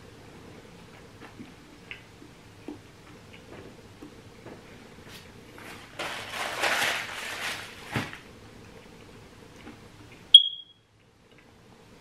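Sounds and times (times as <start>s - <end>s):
paper towel crinkling: 5.1s - 8.3s
sharp high ping: 10.4s - 10.8s.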